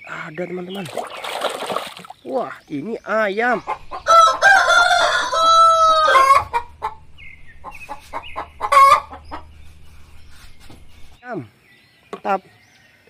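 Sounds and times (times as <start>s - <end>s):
chickens clucking: 3.5s - 11.2s
rooster crowing: 3.7s - 9.6s.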